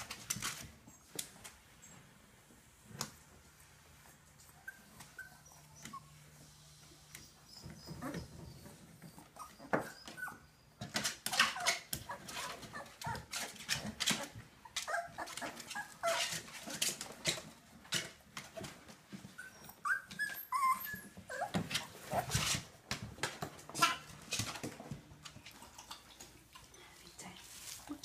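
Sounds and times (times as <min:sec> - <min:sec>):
puppies scrabbling and rustling: 0:00.0 - 0:28.0
puppies whimpering and squeaking: 0:04.4 - 0:22.8.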